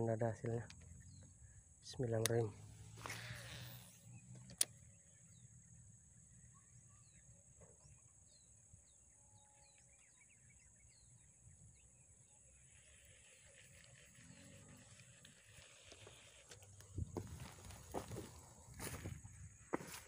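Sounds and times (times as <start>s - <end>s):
high insect drone: 0.0s - 7.3s, 8.3s - 20.0s.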